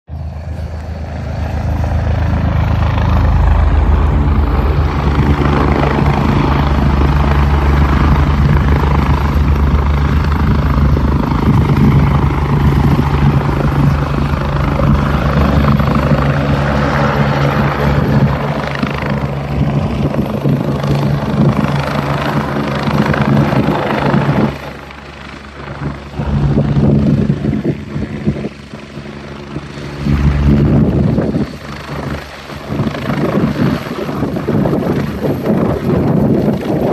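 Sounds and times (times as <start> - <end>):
helicopter rotor drone: 0.1 - 36.9
rushing turbine: 0.1 - 36.9.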